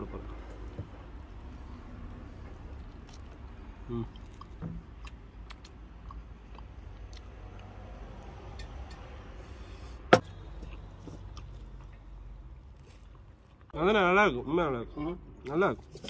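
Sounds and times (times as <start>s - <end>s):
person chewing food: 0.4s - 9.1s, 10.2s - 13.8s.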